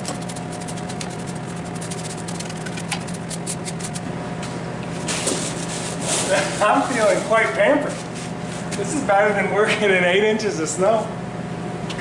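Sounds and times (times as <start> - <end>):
brush scratching metal: 0.0 - 4.1
machine humming: 0.0 - 12.0.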